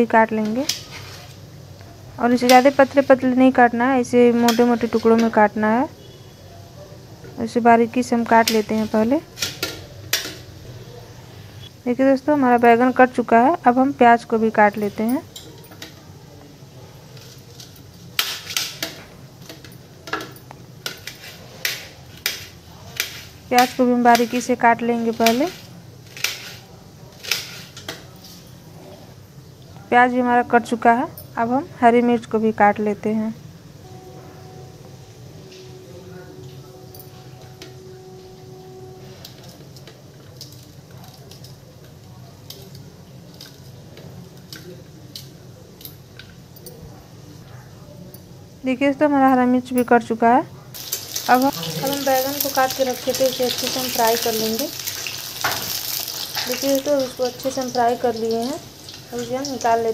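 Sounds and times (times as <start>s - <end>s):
steady low hum: 33.4s - 40.0s.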